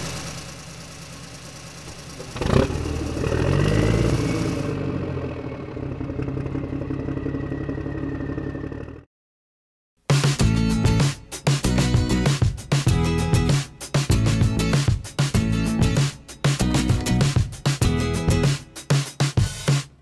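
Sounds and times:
vehicle engine running and revving: 0.0 - 9.1.

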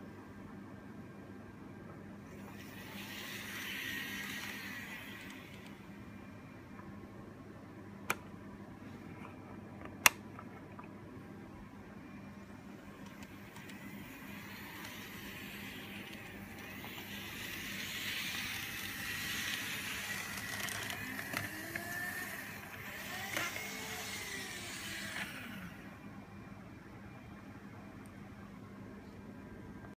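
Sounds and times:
model train motor whine: 2.3 - 6.0, 13.0 - 26.1.

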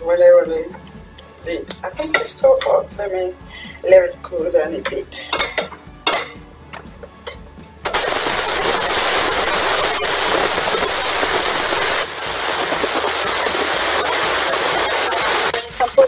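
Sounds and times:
spatula clinking on metal pot: 5.2 - 6.4
meat sizzling in hot oil: 7.9 - 16.0.

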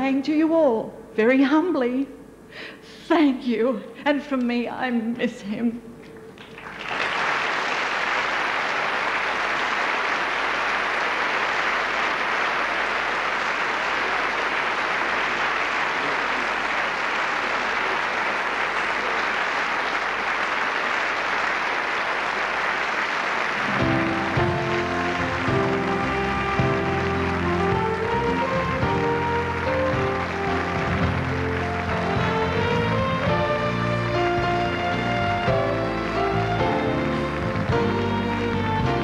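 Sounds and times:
large audience applauding: 6.3 - 39.0
music playing: 23.6 - 39.0.

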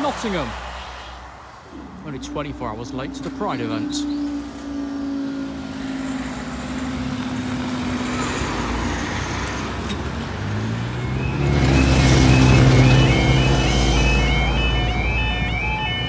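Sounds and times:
diesel train hum: 0.0 - 16.0
road traffic noise: 0.0 - 16.0.

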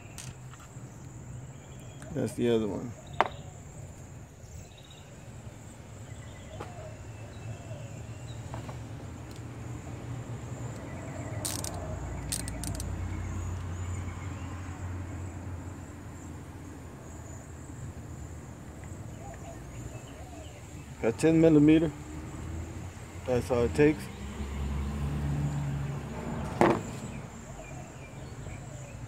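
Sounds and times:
sharp clicks: 10.8 - 13.0.

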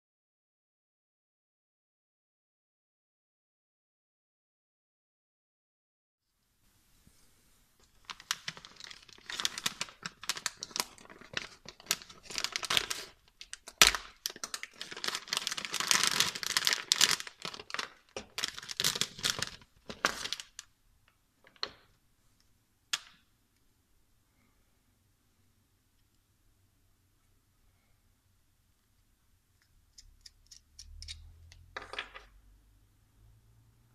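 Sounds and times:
plastic bag tearing and crinkling: 8.0 - 20.7.

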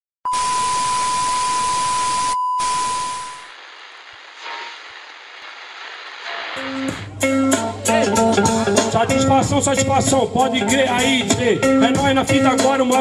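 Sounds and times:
test-tone beep: 0.3 - 3.5
television static hiss: 0.4 - 9.2.

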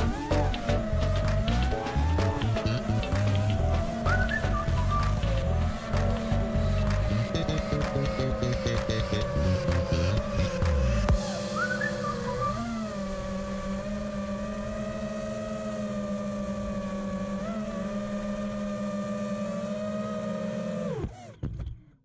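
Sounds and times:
drone motors whining: 0.0 - 21.8.

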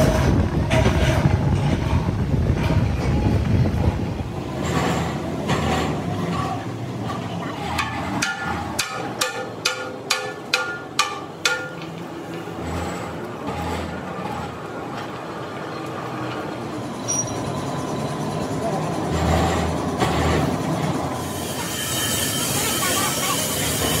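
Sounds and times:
workshop machinery rumble: 0.0 - 24.0
hammer blows on cast-iron wheel: 7.7 - 12.8, 19.2 - 24.0.

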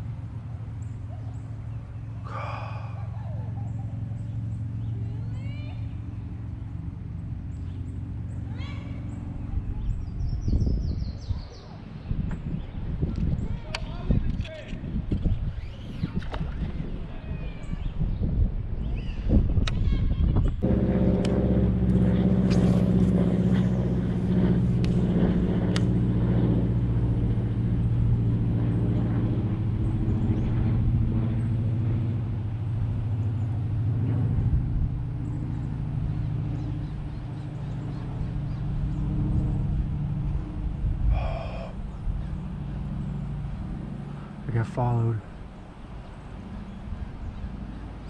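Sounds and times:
motor humming: 20.6 - 48.0.

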